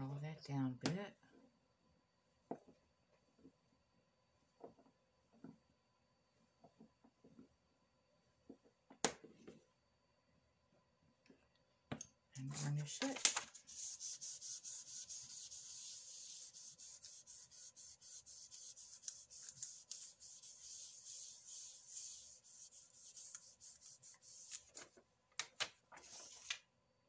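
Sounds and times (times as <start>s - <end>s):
hands rubbing over paper: 12.4s - 25.0s
paper rustling: 12.5s - 26.6s.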